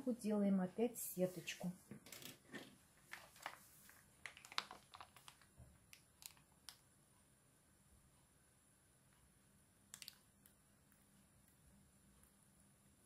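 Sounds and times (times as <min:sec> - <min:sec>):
plastic pouch crinkling: 0:03.1 - 0:06.8.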